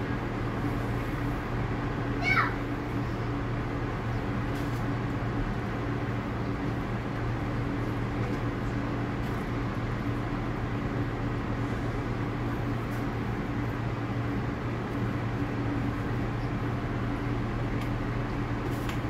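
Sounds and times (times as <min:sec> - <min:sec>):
subway car air-conditioning hum: 0:00.0 - 0:19.0.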